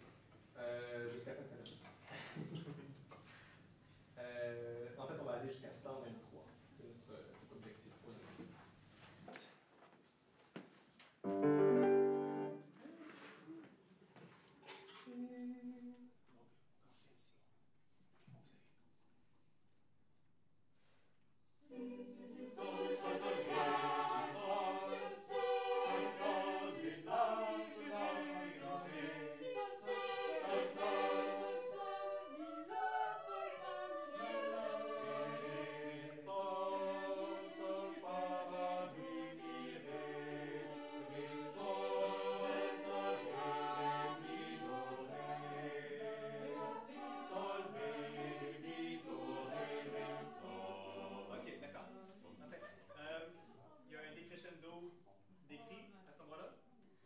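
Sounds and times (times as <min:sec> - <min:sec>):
vocal ensemble singing a cappella: 0:00.6 - 0:03.5, 0:14.2 - 0:16.2, 0:21.6 - 0:52.8.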